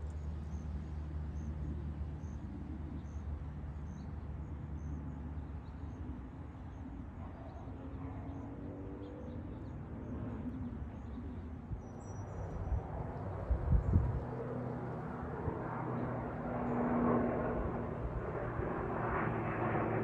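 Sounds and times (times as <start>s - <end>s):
distant engines rumbling: 0.1s - 20.0s.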